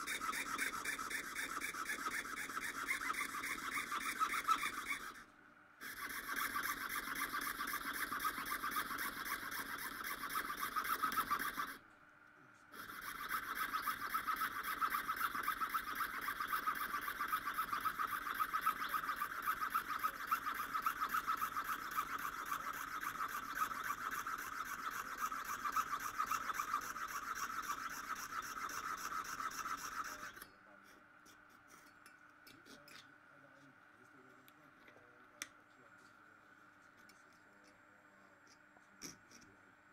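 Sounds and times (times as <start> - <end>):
saw cutting shell: 0.0 - 11.8, 12.7 - 30.5.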